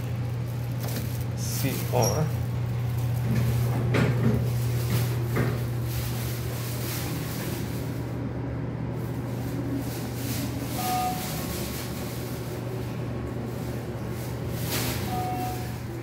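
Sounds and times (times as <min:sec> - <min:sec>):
elevator low hum: 0:00.0 - 0:16.0
short electronic beep: 0:10.8 - 0:11.3, 0:15.1 - 0:15.7.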